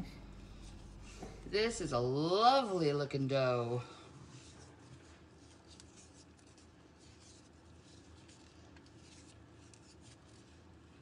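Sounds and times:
wooden spoon stirring dough: 3.6s - 11.0s.

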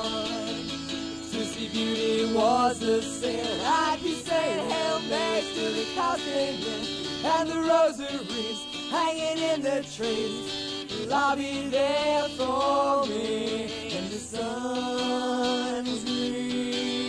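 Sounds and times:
acoustic guitar: 0.0s - 17.0s
voices singing: 0.0s - 17.0s.

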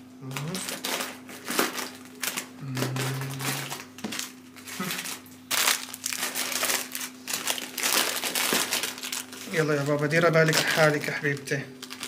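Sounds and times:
plastic wrappers crinkling: 0.2s - 12.0s
person humming: 2.6s - 3.9s, 4.7s - 5.1s.

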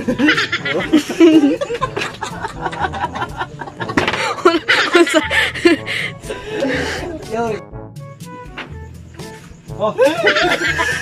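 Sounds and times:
men laughing: 0.0s - 7.3s, 9.9s - 11.0s.

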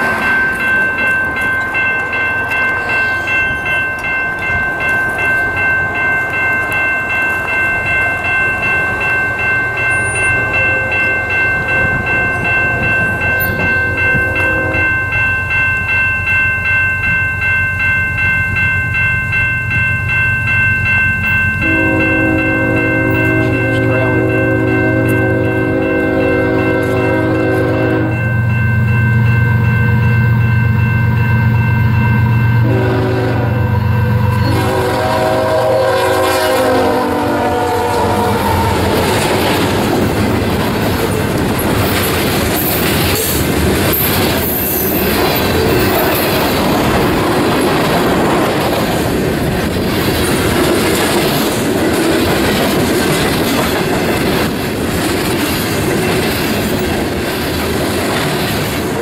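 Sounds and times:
locomotive horn blasts: 10.5s - 11.2s, 13.4s - 15.0s, 21.6s - 28.2s, 32.6s - 39.2s
wheels clicking over rail joints: 37.8s - 59.0s.

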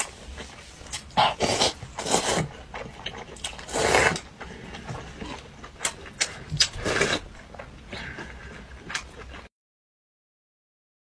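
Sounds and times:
person slurping noodles: 1.1s - 2.5s, 3.6s - 5.4s, 6.6s - 7.3s.

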